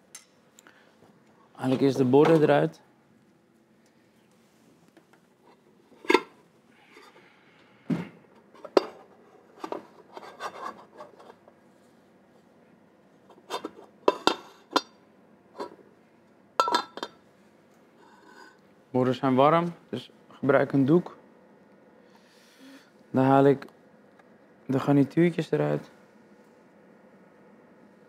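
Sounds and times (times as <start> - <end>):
ceramic plates clinking: 13.5 - 15.0, 16.6 - 17.2.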